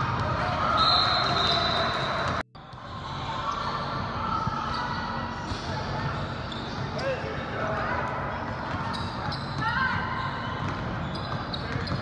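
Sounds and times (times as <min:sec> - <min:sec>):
basketball bouncing on court: 0:10.6 - 0:12.0.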